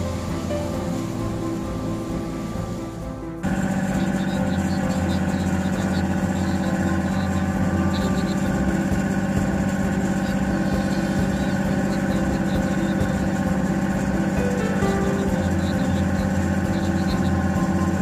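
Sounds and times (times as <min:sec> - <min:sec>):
boat engine humming steadily: 0:00.0 - 0:18.0.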